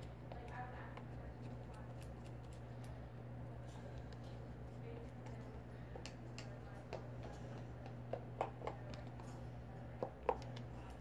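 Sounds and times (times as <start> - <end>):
plastic cup taps and clicks: 6.0 - 9.2, 10.0 - 10.7.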